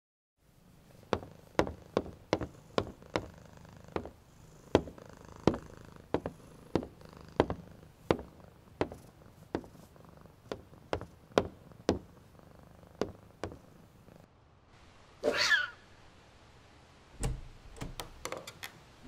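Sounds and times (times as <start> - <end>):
cat purring: 0.7 - 14.3
boots on wooden floor: 1.0 - 12.2, 13.0 - 13.7.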